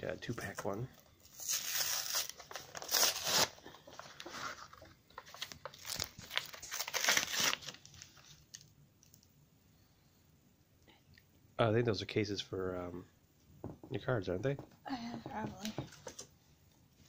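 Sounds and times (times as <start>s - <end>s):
packaging being torn and crinkled: 1.2s - 4.6s, 5.2s - 9.3s.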